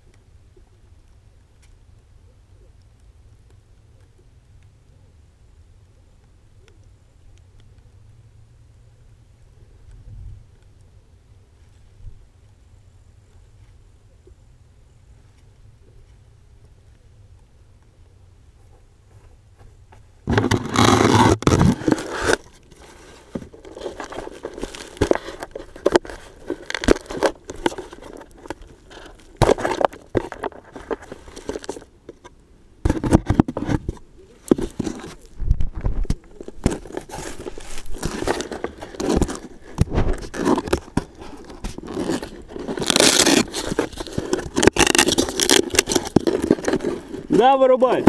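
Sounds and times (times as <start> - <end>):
dry grass rustling and crackling: 18.5 - 48.0.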